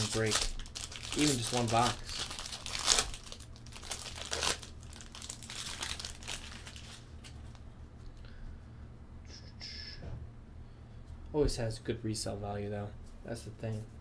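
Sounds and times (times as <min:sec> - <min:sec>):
foil wrapper tearing and crinkling: 0:00.0 - 0:07.6.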